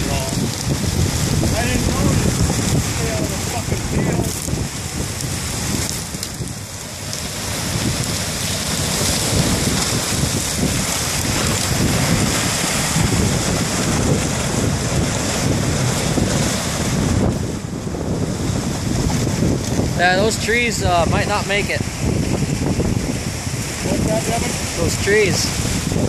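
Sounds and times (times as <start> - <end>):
wind on the microphone: 0.0 - 26.0.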